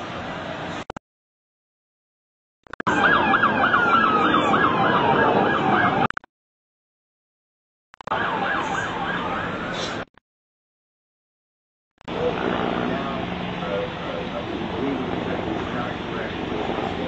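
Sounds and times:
street background noise: 0.0s - 1.0s, 2.7s - 6.1s, 8.1s - 10.2s, 12.0s - 17.0s
siren yelping: 2.8s - 6.2s, 8.0s - 10.0s
second siren gliding in pitch: 2.9s - 6.1s, 8.1s - 9.8s.

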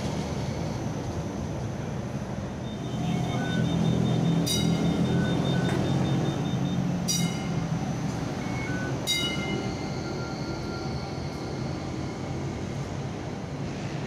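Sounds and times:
tram motor hum: 0.0s - 14.0s
ringing tram bell dings: 3.0s - 12.5s.

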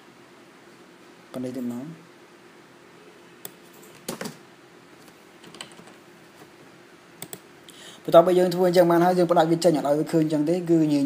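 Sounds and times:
low room hiss: 0.0s - 11.0s
faint computer clicks: 7.2s - 7.5s.

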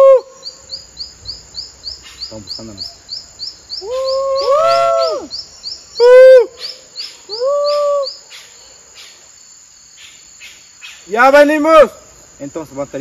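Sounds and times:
high insect whine: 0.0s - 13.0s
insects chirping: 0.0s - 13.0s
loud drawn-out calls: 3.8s - 5.4s.

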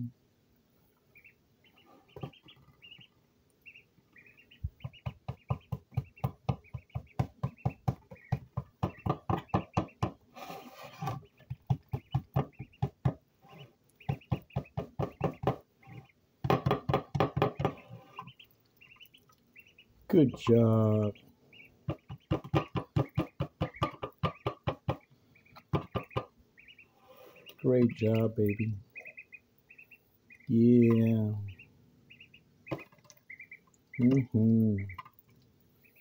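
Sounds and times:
duckling peeping: 0.8s - 36.0s
rustling scrape: 10.3s - 11.2s.

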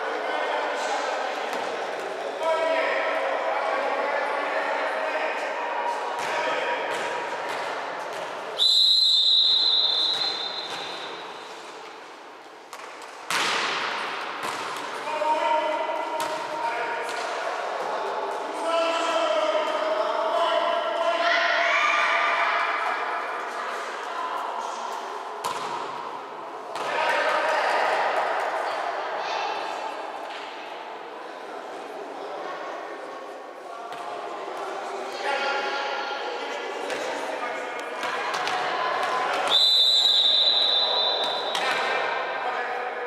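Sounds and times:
referee's whistle blast: 8.6s - 10.8s, 39.5s - 41.5s
volleyball struck: 12.7s - 14.9s.

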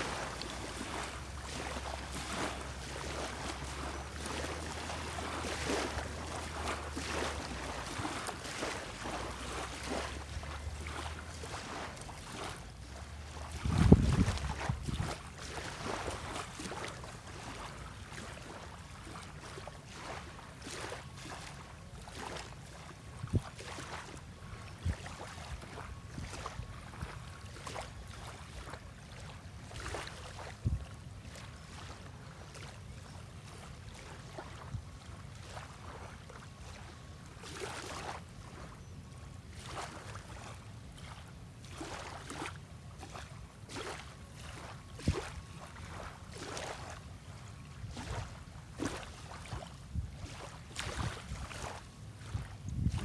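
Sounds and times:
wind rumble on microphone: 0.0s - 18.3s, 23.0s - 27.7s, 30.3s - 31.0s, 34.4s - 35.6s, 47.8s - 53.0s
wavelets lapping at shore: 0.0s - 53.0s.

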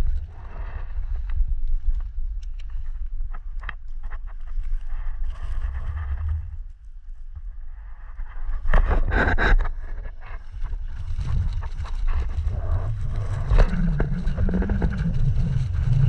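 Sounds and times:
wind buffeting microphone: 8.3s - 16.0s.

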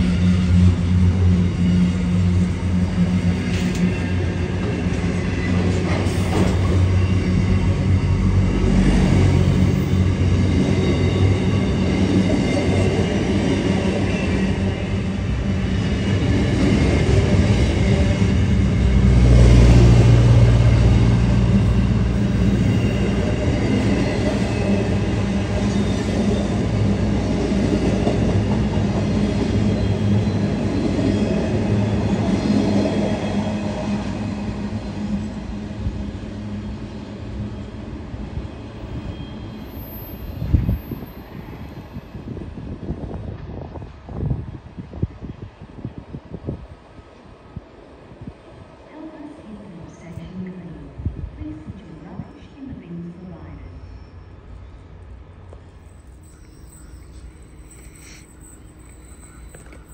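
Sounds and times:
train wheels rumbling on rail: 0.0s - 53.0s, 54.4s - 59.9s.

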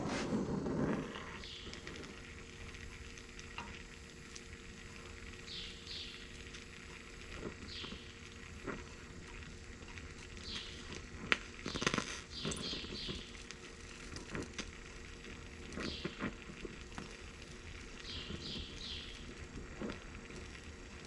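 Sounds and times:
torch flame hissing: 0.0s - 21.0s
birds chirping: 1.4s - 2.0s, 5.3s - 6.6s, 7.4s - 8.3s, 10.3s - 10.9s, 11.7s - 13.4s, 15.8s - 16.2s, 17.9s - 19.4s.

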